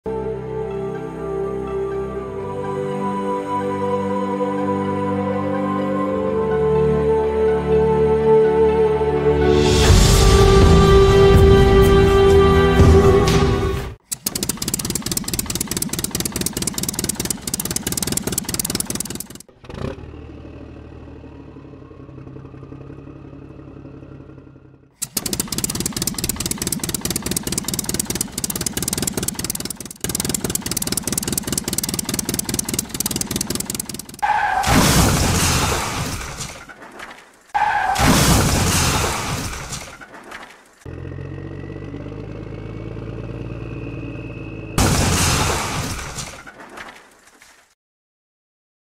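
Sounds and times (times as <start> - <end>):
diesel engine chugging effect: 14.0 - 34.3
rising engine whine: 40.9 - 44.8.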